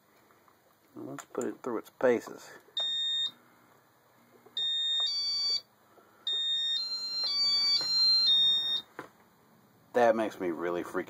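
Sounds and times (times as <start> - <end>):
electronic beeps: 2.8 - 3.4, 6.3 - 8.9.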